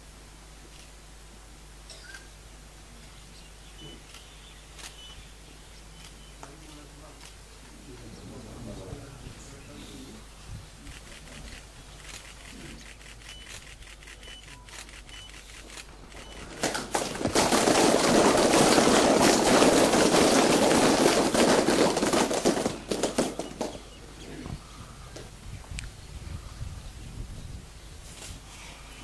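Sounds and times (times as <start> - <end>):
people clapping with cupped hands: 16.3 - 23.8.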